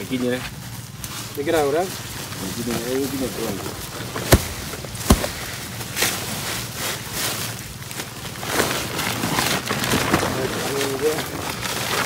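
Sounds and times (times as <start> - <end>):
leaves and plastic sacks rustling: 0.0 - 12.0
sharp cracks: 4.1 - 6.2.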